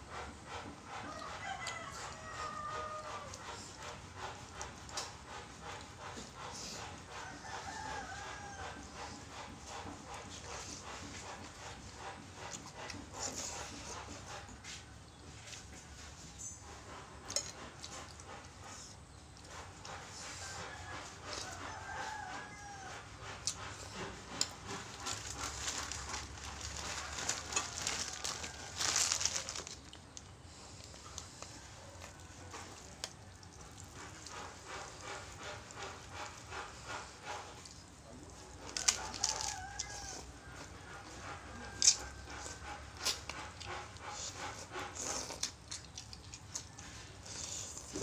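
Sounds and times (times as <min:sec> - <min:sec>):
slurping and chewing noodles: 0:00.0 - 0:48.0
cracker crackling and crunching: 0:24.4 - 0:36.6, 0:38.6 - 0:40.1.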